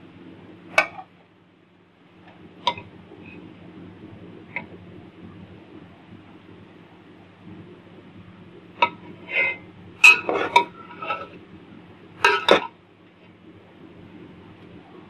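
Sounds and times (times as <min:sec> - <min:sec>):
metal spoon clinking and scraping: 0:10.1 - 0:11.3.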